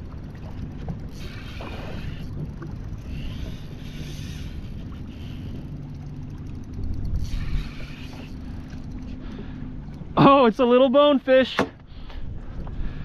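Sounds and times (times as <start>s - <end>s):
fishing reel gears whirring: 0.0s - 10.1s.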